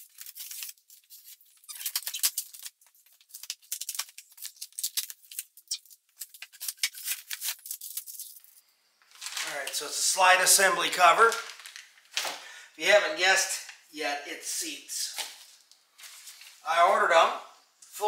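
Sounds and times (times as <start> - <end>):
packing tape being slit and pulled: 0.0 - 8.5.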